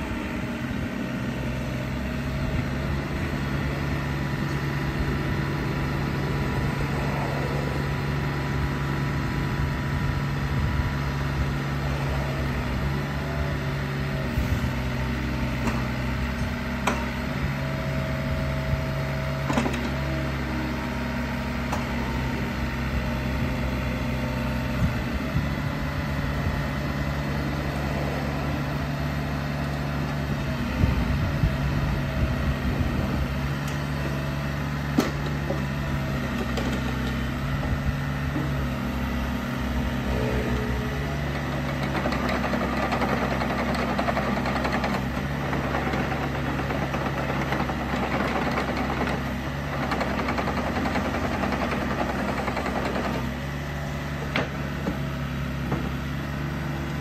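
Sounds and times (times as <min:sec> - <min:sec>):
diesel engine running: 0:00.0 - 0:57.0
hydraulics working: 0:00.0 - 0:57.0.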